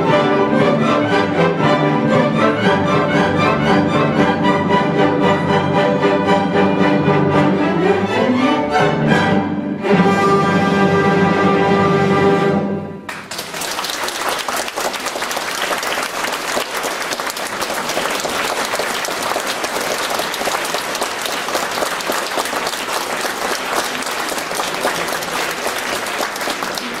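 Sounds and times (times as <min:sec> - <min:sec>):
audience applause: 0:13.1 - 0:27.0.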